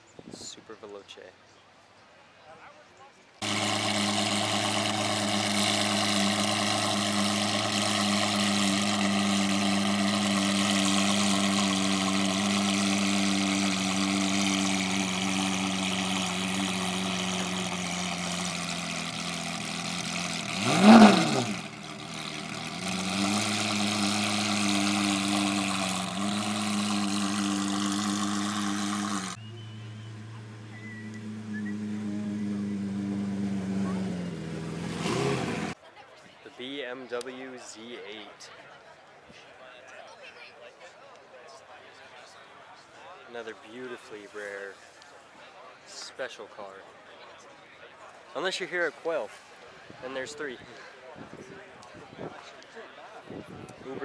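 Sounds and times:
car engine idling: 3.4 - 35.8
engine throttle blip: 3.4 - 35.8.

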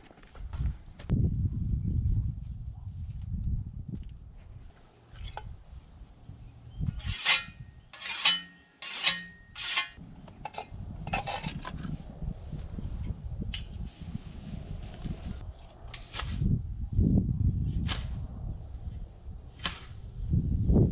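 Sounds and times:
whetstone honing scythe blade: 7.0 - 10.0.

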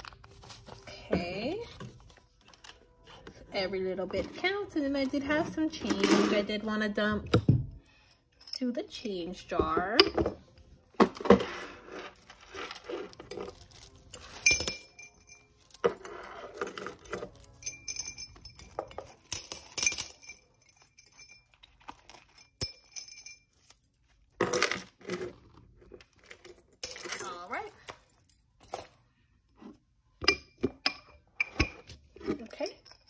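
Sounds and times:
coins clinking into a jar: 11.3 - 25.2, 26.2 - 29.0.

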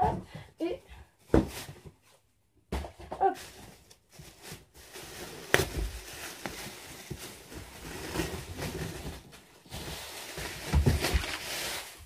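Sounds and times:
plastic wrapping crinkling: 3.3 - 12.0.

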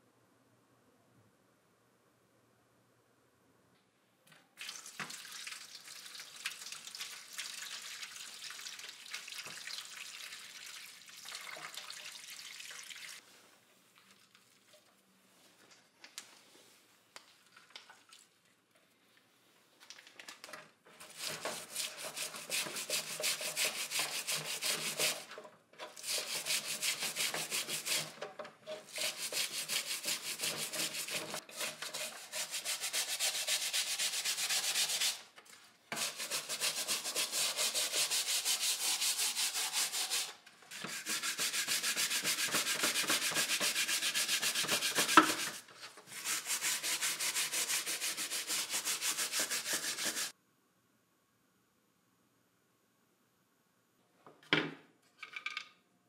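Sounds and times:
hand sanding back and forth: 21.0 - 25.4, 26.0 - 35.2, 35.9 - 50.3.

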